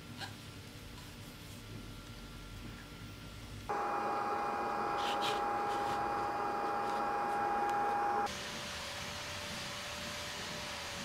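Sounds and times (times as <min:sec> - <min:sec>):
steady mechanical hum: 0:00.0 - 0:11.0
hiss: 0:04.8 - 0:11.0.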